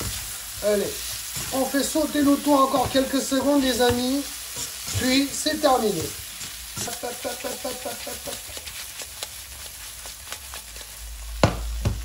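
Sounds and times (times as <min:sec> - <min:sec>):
spatula scraping pan: 0:00.0 - 0:11.3
food sizzling in a wok: 0:00.0 - 0:12.0.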